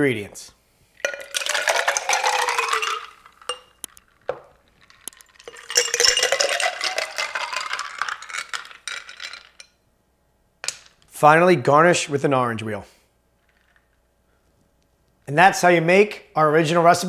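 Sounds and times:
glass clinks: 1.0 - 3.9, 5.4 - 9.8
ice and liquid pouring: 1.0 - 9.7.

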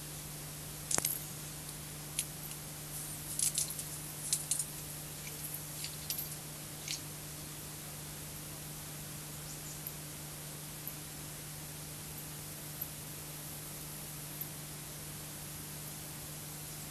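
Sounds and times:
sharp crackles and clicks: 0.9 - 1.3, 2.2 - 7.0.

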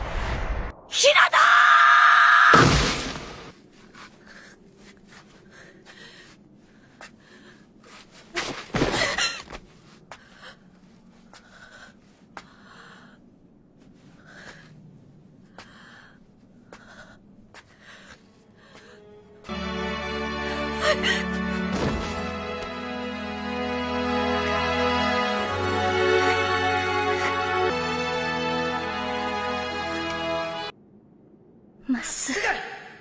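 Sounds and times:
woman breathing raggedly and gasping: 4.1 - 8.2.

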